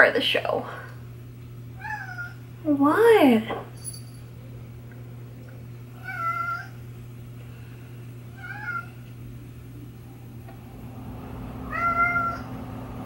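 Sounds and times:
steady low hum: 0:00.0 - 0:13.0
cat meowing: 0:01.8 - 0:02.4, 0:06.0 - 0:06.8, 0:08.3 - 0:09.0, 0:11.7 - 0:12.4.

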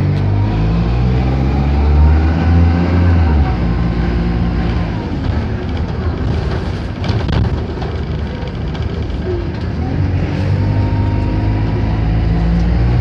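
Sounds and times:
bus diesel engine accelerating: 0:00.0 - 0:13.0.

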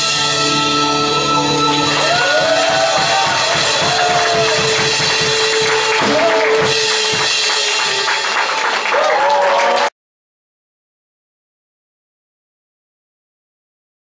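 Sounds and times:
melodic backing music: 0:00.0 - 0:08.8
drum kit playing: 0:00.0 - 0:09.0.

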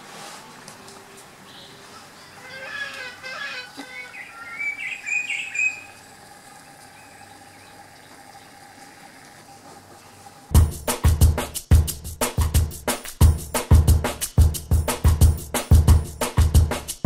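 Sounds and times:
birds chirping: 0:01.2 - 0:10.5.

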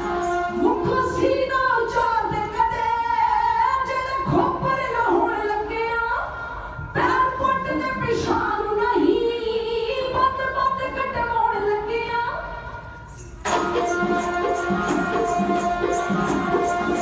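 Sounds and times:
women singing together: 0:00.0 - 0:06.2
accompanied music: 0:13.4 - 0:17.0.

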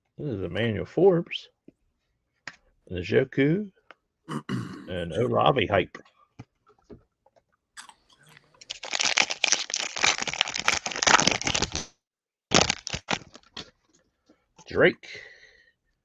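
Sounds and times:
foil wrapper crinkling and tearing: 0:08.6 - 0:11.9, 0:12.5 - 0:13.7.

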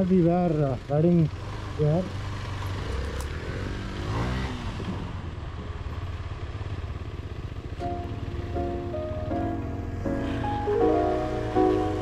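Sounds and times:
motorcycle engine revving: 0:00.0 - 0:12.0
music with held notes: 0:07.8 - 0:12.0.

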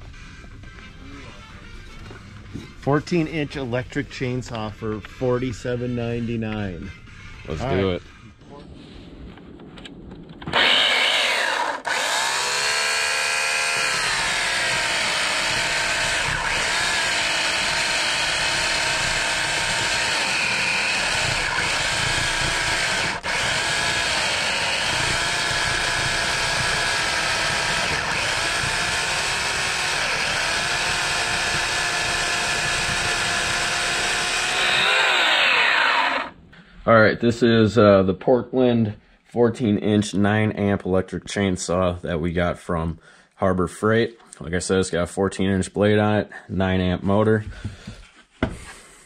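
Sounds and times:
electric chainsaw cutting log: 0:10.4 - 0:36.4.

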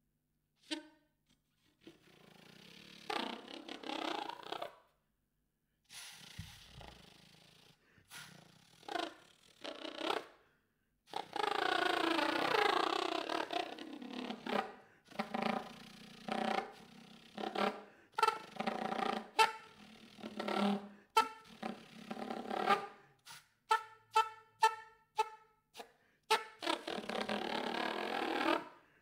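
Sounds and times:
soprano saxophone improvising: 0:11.1 - 0:25.4, 0:26.3 - 0:28.8.

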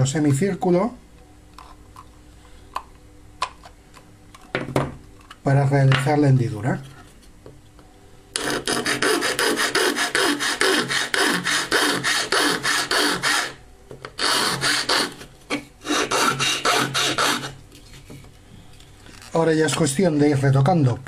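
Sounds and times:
metal file rasping on plastic: 0:08.4 - 0:13.6, 0:14.2 - 0:15.2, 0:15.8 - 0:17.6.

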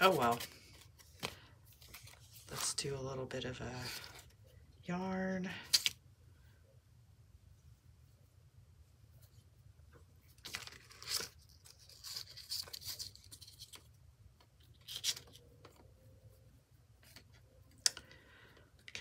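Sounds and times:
paper and cardboard rustling: 0:00.0 - 0:02.9, 0:10.2 - 0:16.0.

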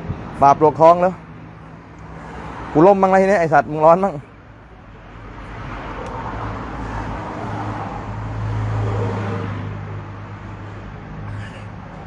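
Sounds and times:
vehicle engine passing: 0:05.0 - 0:12.0.

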